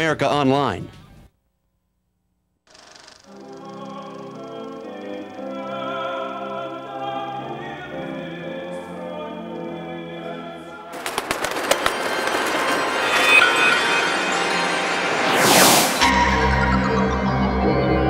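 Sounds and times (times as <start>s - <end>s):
dramatic choral trailer music: 3.4s - 18.0s.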